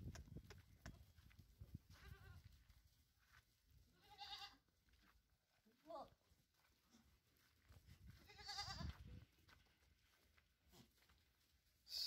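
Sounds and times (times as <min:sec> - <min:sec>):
faint goat bleats: 0:01.9 - 0:02.5, 0:03.9 - 0:04.7, 0:08.2 - 0:09.1.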